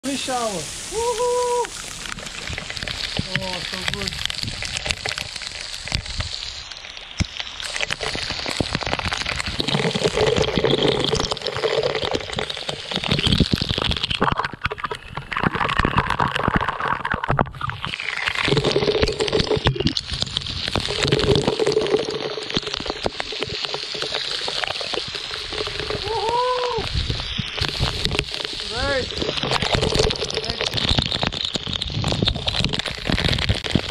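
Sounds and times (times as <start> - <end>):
waterfall splashing: 0.0 - 11.5, 17.9 - 32.0.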